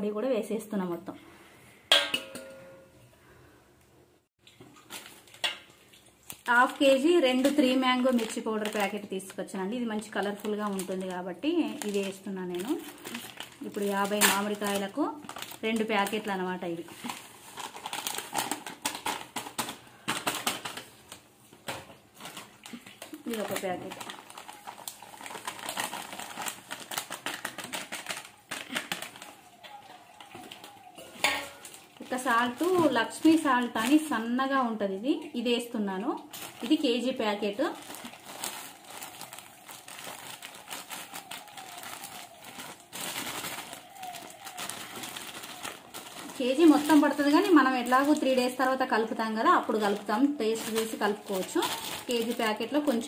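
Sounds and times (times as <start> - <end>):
plastic packet crinkling: 4.5 - 34.3, 36.2 - 53.0.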